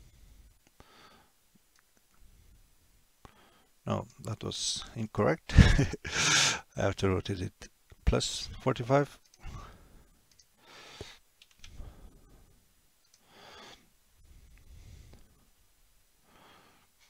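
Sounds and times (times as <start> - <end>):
soft breathing: 0.0 - 1.4, 2.1 - 3.8, 9.4 - 15.6, 16.2 - 17.0
faint mouse clicks: 10.3 - 11.8.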